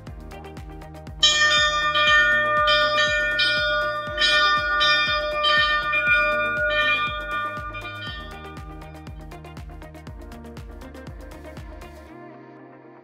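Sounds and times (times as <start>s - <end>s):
background music with steady beat: 0.0s - 13.0s
bell ringing: 1.2s - 8.7s.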